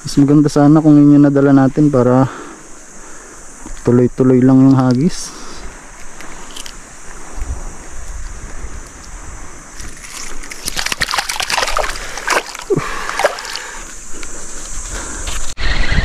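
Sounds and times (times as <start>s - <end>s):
fish splashing in water: 9.8s - 14.1s.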